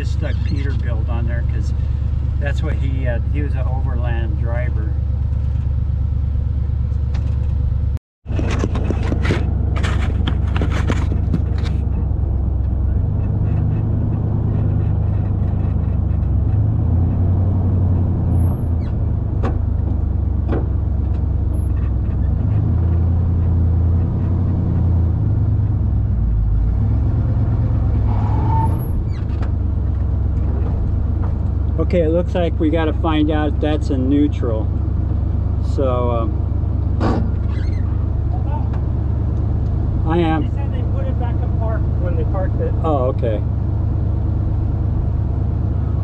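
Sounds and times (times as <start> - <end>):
truck engine idling: 0.0 - 16.8, 28.8 - 46.0.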